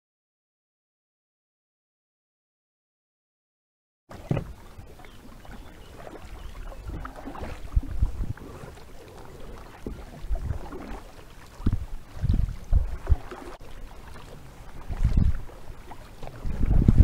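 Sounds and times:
paddles splashing in water: 4.1s - 17.0s.

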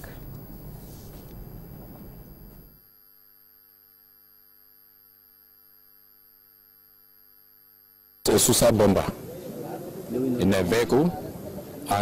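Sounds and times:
background noise: 0.0s - 2.9s, 8.2s - 12.0s
faint electrical mains hum: 0.0s - 12.0s.

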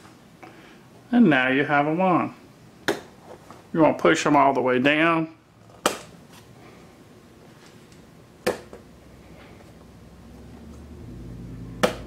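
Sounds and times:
low hum: 8.9s - 12.0s.

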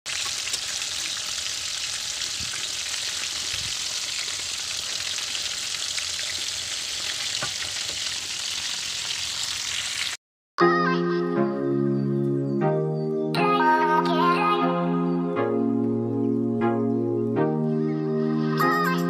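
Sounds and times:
chicken sizzling in hot oil: 0.1s - 10.2s.

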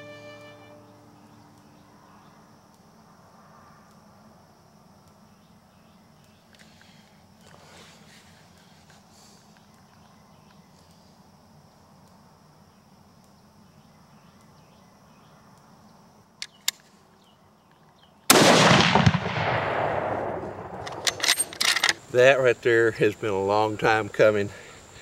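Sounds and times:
thin steady high tone: 0.0s - 1.8s
field ambience: 0.0s - 25.0s
rifle shot with echo: 18.3s - 21.5s.

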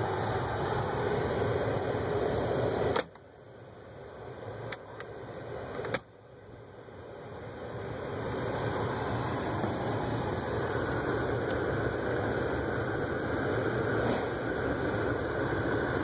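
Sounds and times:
dashboard blower rushing: 8.1s - 16.0s.

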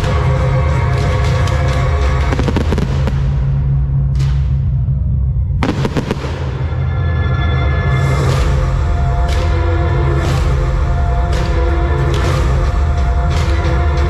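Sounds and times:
loud music with heavy bass: 0.0s - 14.0s
fireworks bursting and crackling: 2.0s - 3.6s, 5.6s - 6.9s.

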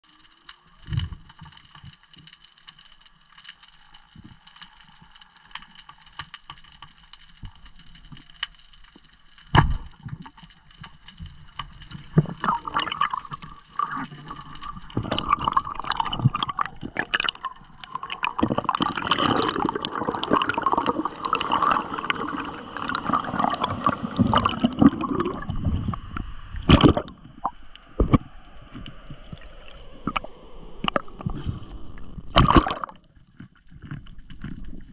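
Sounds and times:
water gurgling and sloshing: 9.6s - 34.9s.

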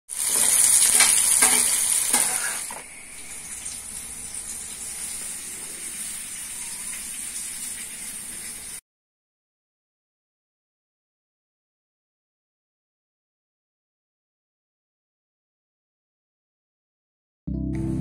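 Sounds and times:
hot oil sizzling: 0.1s - 8.8s.

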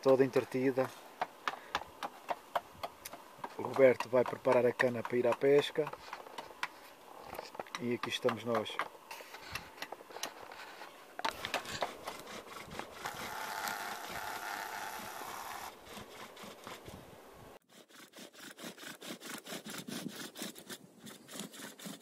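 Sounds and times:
bow drill rubbing and scraping: 9.1s - 17.0s, 17.7s - 22.0s.

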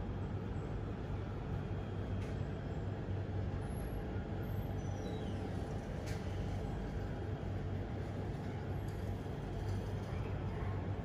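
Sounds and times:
outdoor rumble and hum: 0.0s - 11.0s
faint high chirp: 4.8s - 5.4s.

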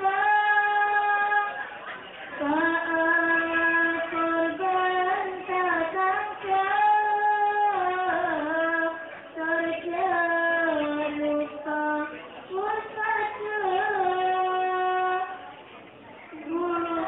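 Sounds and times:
girl singing devotional song: 0.0s - 15.6s, 16.3s - 17.0s.

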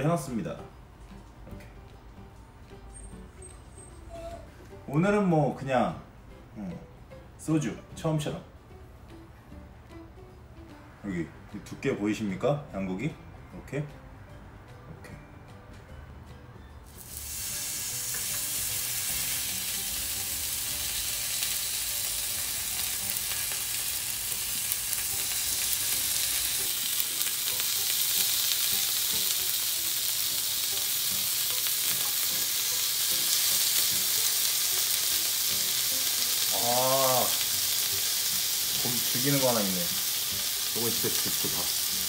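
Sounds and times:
meat sizzling on a grill plate: 16.9s - 42.0s.

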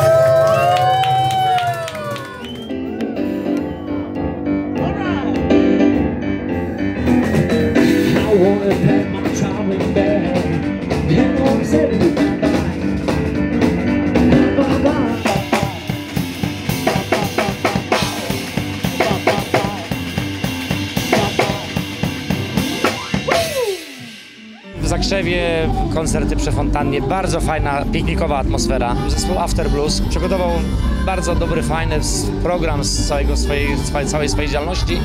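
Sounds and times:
blues band playing: 0.0s - 35.0s
drum kit beats: 0.0s - 35.0s
keyboard: 0.0s - 35.0s.

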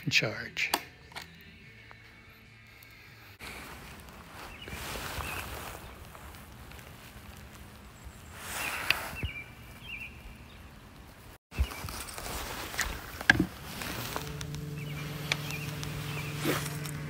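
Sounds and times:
electric motor humming: 13.0s - 17.0s.

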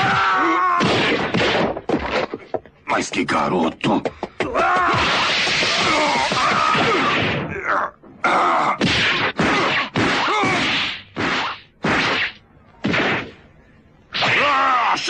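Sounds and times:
hard punch impacts: 0.0s - 2.2s, 8.8s - 13.4s.

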